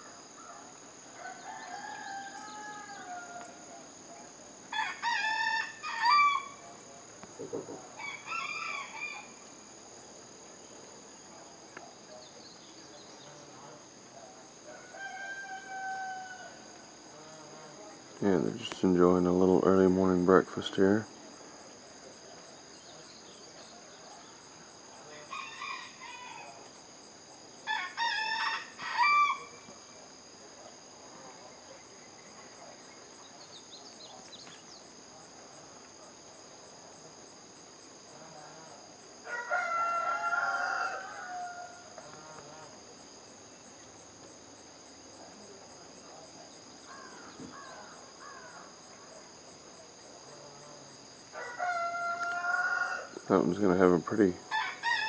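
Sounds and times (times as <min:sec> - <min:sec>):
rooster crowing: 0:00.0 - 0:03.7, 0:04.7 - 0:06.6, 0:07.9 - 0:09.4, 0:14.6 - 0:16.8, 0:25.1 - 0:26.6, 0:27.6 - 0:29.7, 0:39.2 - 0:42.0, 0:51.3 - 0:53.2, 0:54.4 - 0:55.0
insects trilling: 0:00.0 - 0:55.0.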